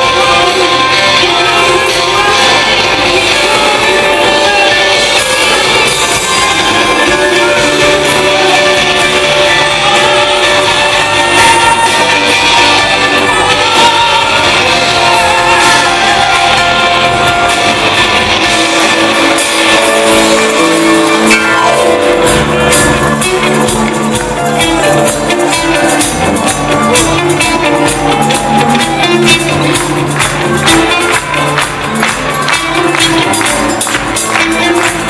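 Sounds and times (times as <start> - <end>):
people singing: 0.0 - 31.3
bass: 0.0 - 35.0
drums: 0.0 - 35.0
guitar: 0.0 - 35.0
live band playing: 0.0 - 35.0.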